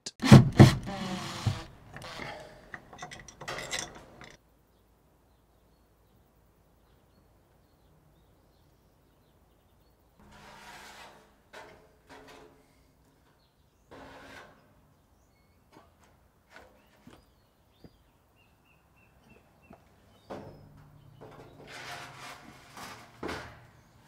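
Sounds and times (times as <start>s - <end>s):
iron sheet scraping and rattling: 10.2s - 12.8s, 13.9s - 14.8s, 21.2s - 24.0s.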